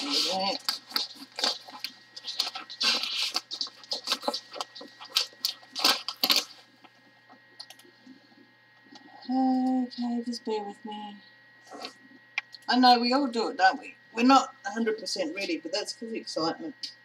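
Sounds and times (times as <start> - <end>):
wrapping paper crinkling: 0.0 - 7.0
faint handling sounds: 0.0 - 9.2.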